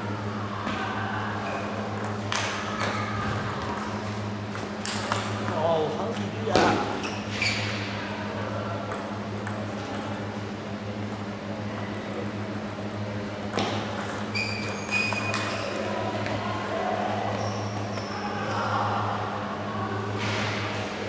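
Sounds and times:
sports hall hum: 0.0 - 21.0
short high squeaks: 7.0 - 7.8, 14.3 - 15.7.

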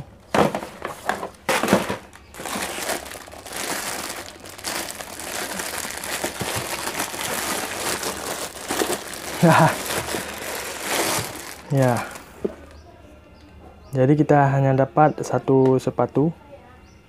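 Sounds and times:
plastic bag crinkling: 0.4 - 12.7.

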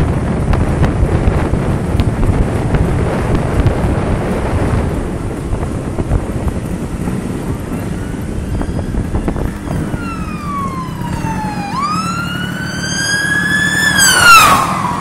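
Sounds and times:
scooter engine: 0.0 - 15.0
wind on microphone: 0.0 - 15.0
emergency vehicle siren wailing: 7.4 - 15.0.

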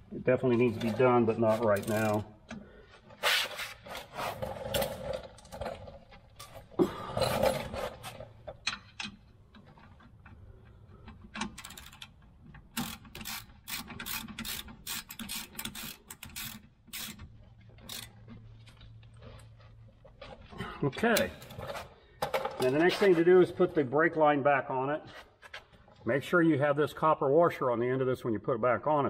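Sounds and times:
ratchet wrench clicking: 1.8 - 2.2, 11.5 - 18.1.

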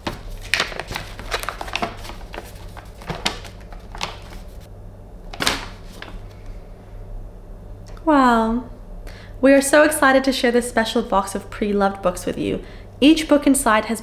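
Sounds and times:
paper crinkling and rustling: 0.0 - 4.7, 5.3 - 6.5.

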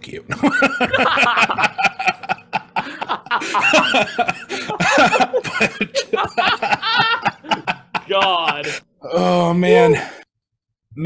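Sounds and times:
men laughing hard: 0.3 - 8.8.

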